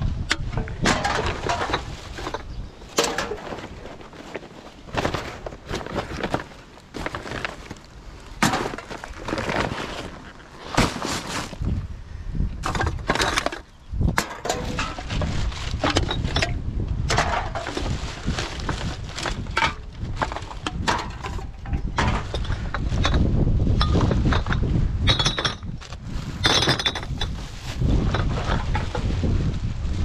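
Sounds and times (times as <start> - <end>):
plastic bag rustling: 1.1 - 11.8, 14.6 - 16.4, 17.3 - 23.3, 25.7 - 30.0
glass bottles and cans clinking: 15.8 - 17.8, 20.6 - 25.8, 26.4 - 27.4.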